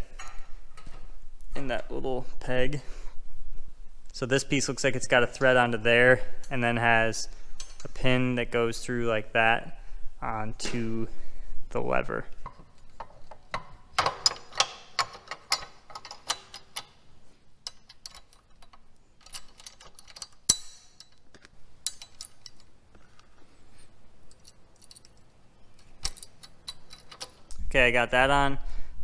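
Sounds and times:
small metal parts clicking: 12.7 - 17.0, 17.6 - 23.3, 24.3 - 27.6.

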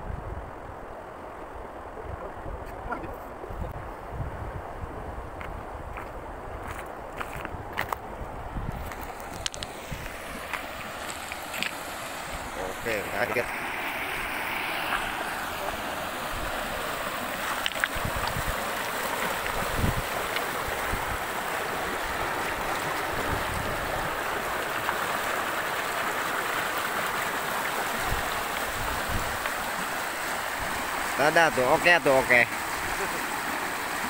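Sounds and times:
river rushing over rocks: 8.8 - 34.0.

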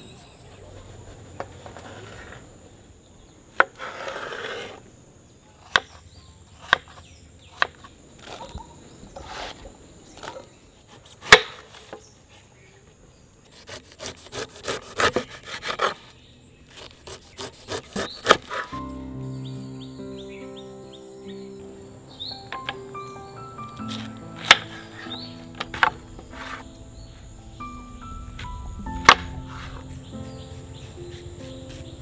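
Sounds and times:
knife crunching through pineapple rind: 13.5 - 18.8.

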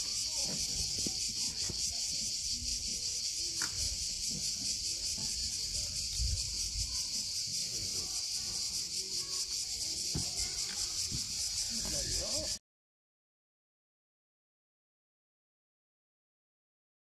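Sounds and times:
cicadas buzzing: 0.0 - 12.6.

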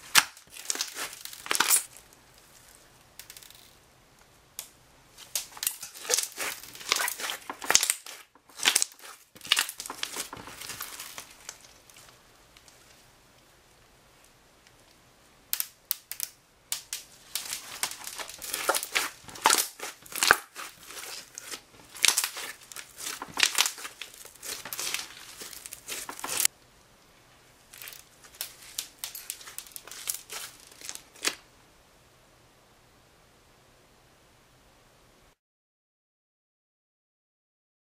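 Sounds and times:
slime squelching: 0.0 - 2.0, 5.2 - 12.1, 17.2 - 26.5, 27.8 - 31.3.

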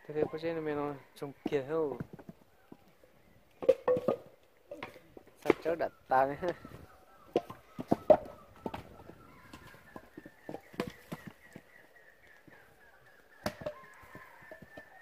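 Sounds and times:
firewood logs knocking: 0.0 - 0.6, 1.3 - 12.6, 13.3 - 15.0.

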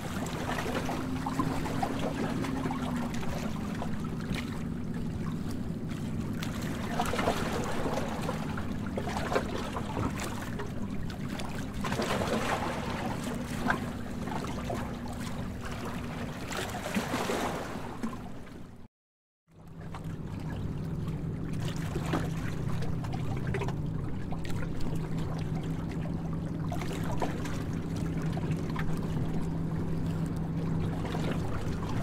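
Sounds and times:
low steady hum: 0.0 - 18.9, 19.6 - 32.0.

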